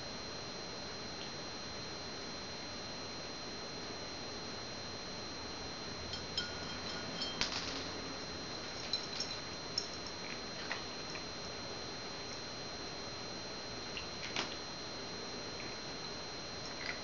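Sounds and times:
cat eating kibble from ceramic bowl: 6.1 - 11.3, 16.7 - 17.0.

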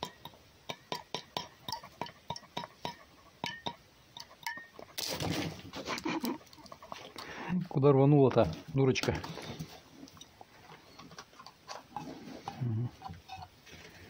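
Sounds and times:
rustling and scuffling: 4.8 - 7.4, 8.3 - 12.6.

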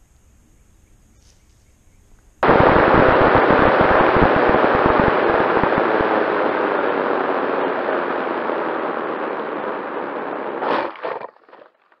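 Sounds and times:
rushing airflow and grass: 2.4 - 11.3.

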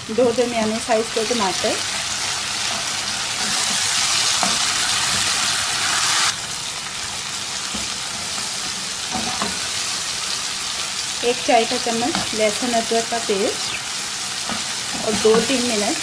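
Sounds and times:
vegetables sizzling in oil: 0.0 - 16.0
spatula stirring in pan: 1.9 - 6.0.

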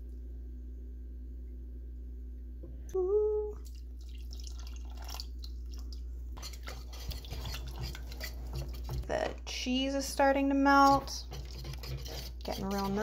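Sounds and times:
person humming: 3.0 - 3.6
whisk scraping and clinking in pot: 6.4 - 9.4, 10.4 - 13.0.

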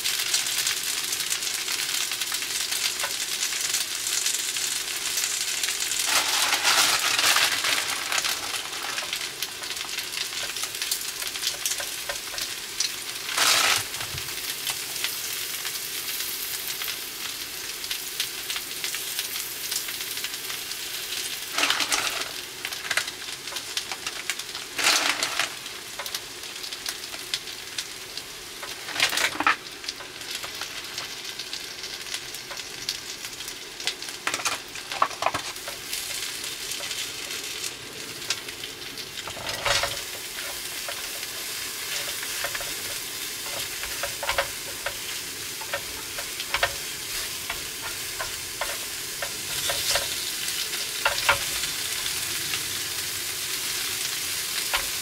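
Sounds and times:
food sizzling on a hot plate: 0.0 - 55.0
rustle of ingredients moved: 5.8 - 10.8, 13.2 - 14.5, 21.4 - 23.1, 24.0 - 26.2, 28.6 - 31.2, 39.2 - 52.6.

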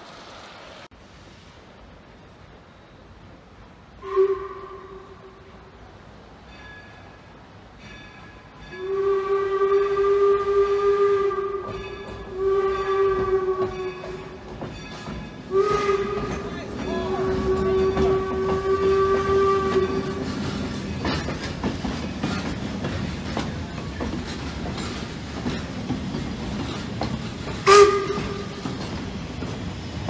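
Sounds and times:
steam locomotive whistle: 4.0 - 5.6, 8.7 - 14.4, 15.5 - 20.4, 27.5 - 28.7
train wheels clicking and rumbling: 5.3 - 30.0.

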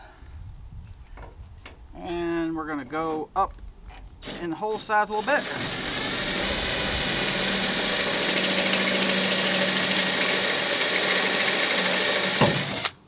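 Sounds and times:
cordless drill cutting sheet metal: 5.1 - 13.0.

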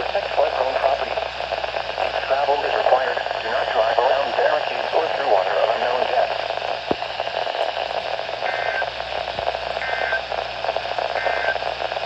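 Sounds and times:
radio static hiss: 0.0 - 12.0
two-tone data bursts: 8.4 - 8.9, 9.8 - 10.3, 11.1 - 11.7.

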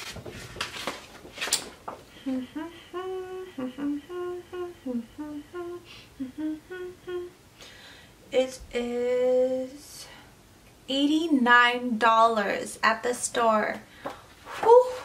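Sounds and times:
woman humming a tune: 2.2 - 7.4.

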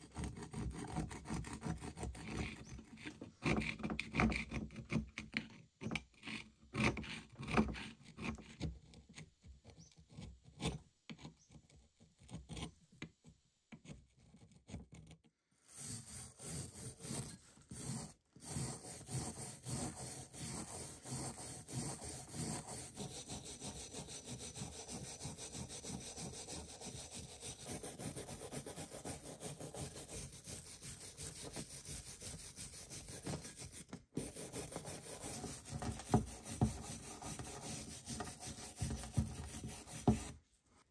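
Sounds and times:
wire brush scrubbing rusty metal: 15.8 - 40.3.

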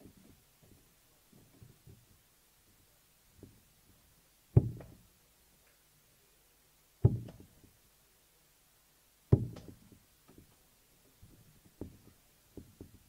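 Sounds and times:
darts striking dartboard: 4.6 - 5.0.

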